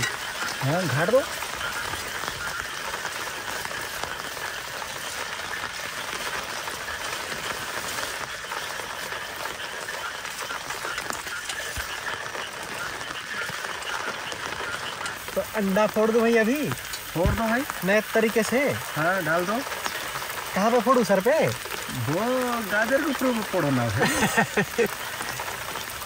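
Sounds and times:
frogs croaking: 0.0 - 26.0
rain hissing: 0.0 - 26.0
vegetables frying in a pan: 0.0 - 26.0.

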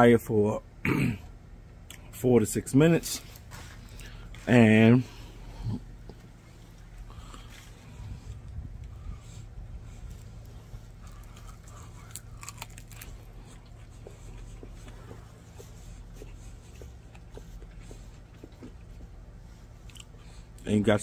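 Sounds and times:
low steady rumble: 0.0 - 21.0
crunching fried chicken: 6.8 - 20.7.

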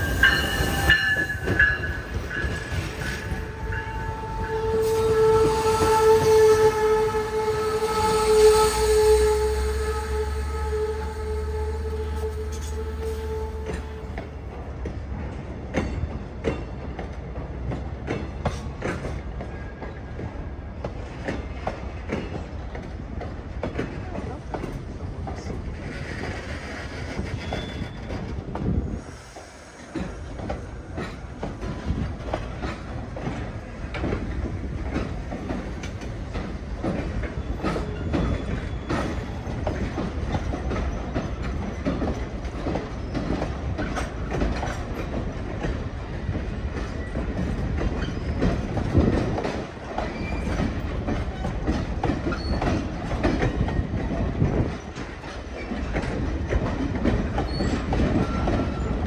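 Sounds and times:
train wheels clacking over rail joints: 0.0 - 59.0
faint wheel squeals: 25.8 - 28.3.

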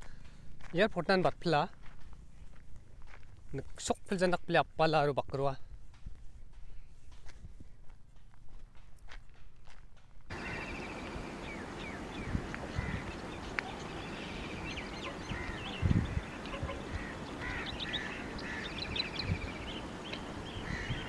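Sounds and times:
outdoor background hiss: 10.2 - 21.0
small birds chirping and trilling: 10.3 - 21.0.

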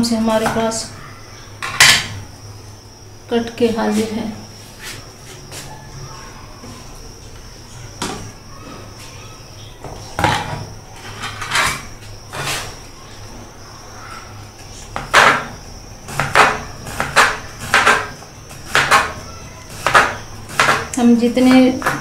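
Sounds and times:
crinkle cutter slicing cucumber: 16.1 - 22.0.

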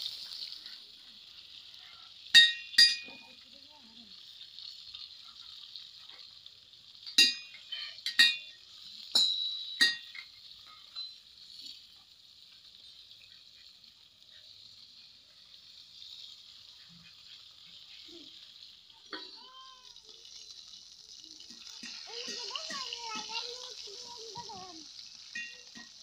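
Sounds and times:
fish sizzling in oil: 0.0 - 26.0
metal spatula clinking on pan: 2.3 - 3.4, 7.0 - 11.3, 21.5 - 23.4, 25.2 - 26.0.

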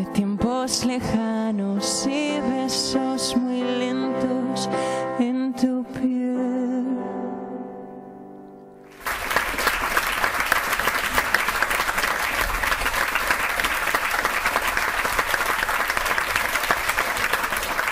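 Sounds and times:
studio applause: 8.9 - 17.9.

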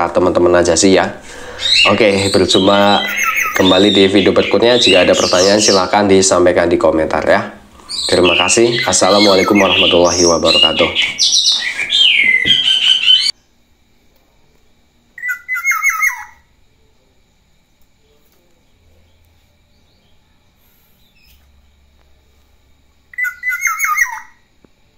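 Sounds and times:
bird calls: 1.2 - 6.4, 7.8 - 13.5, 15.2 - 16.5, 23.1 - 24.5.

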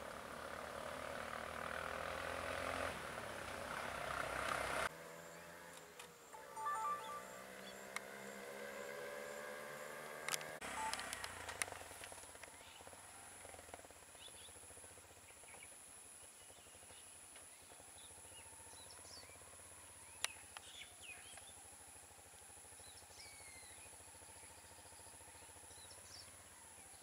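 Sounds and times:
high-pitched drone: 6.4 - 7.9, 10.6 - 11.5.

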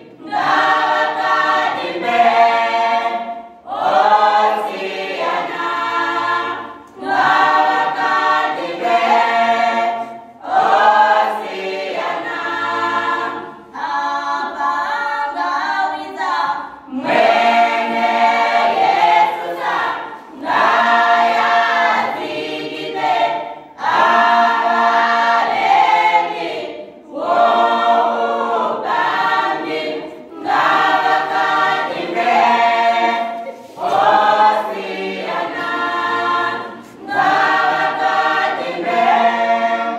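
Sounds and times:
children's choir singing: 0.0 - 39.9.

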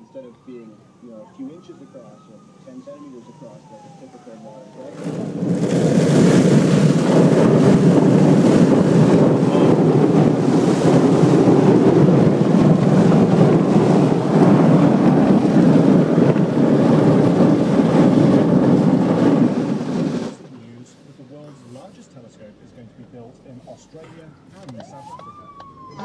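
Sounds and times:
water spray pounding car roof: 5.0 - 20.3.

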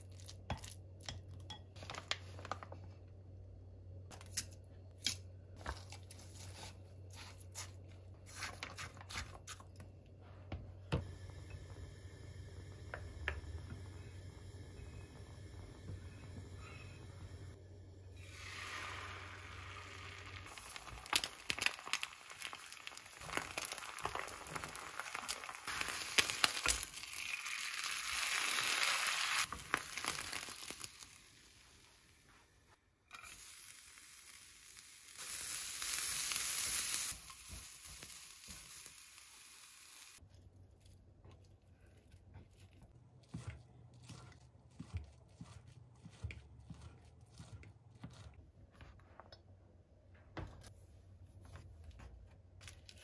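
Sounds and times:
food sizzling in a pan: 18.1 - 32.4, 33.1 - 40.2.

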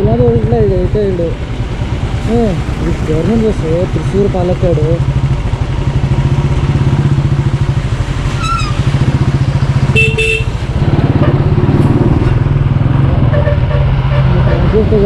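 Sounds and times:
motorcycle engine running: 0.0 - 15.0
vehicle horn honks: 9.9 - 10.6.

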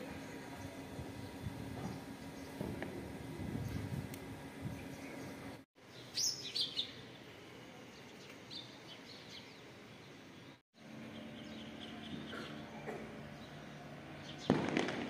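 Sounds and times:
low background hum: 0.0 - 15.0
small birds chirping: 4.6 - 14.6.

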